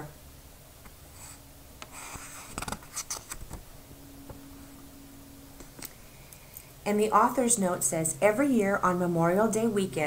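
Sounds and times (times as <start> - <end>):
faint steady hum: 0.0 - 10.0
book pages turning: 1.2 - 3.6.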